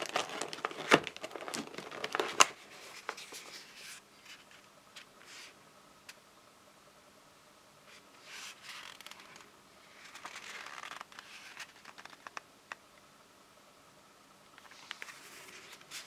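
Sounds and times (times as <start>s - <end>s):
hands rubbing plastic case: 10.2s - 12.4s.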